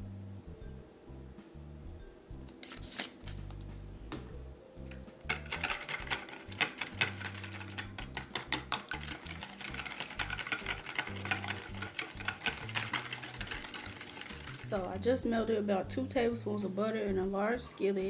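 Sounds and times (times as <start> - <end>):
wire whisk beating batter: 5.2 - 15.2.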